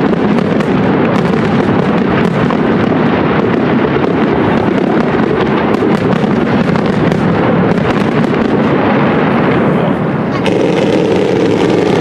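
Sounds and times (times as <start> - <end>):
fast crackling of fireworks: 0.0 - 12.0
fireworks bursting in a rumble: 0.0 - 12.0.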